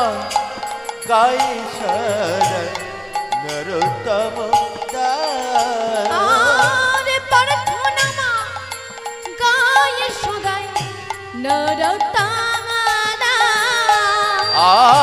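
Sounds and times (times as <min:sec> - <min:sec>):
drum and cymbal strokes: 0:00.0 - 0:15.0
wavering sliding melody: 0:00.0 - 0:15.0.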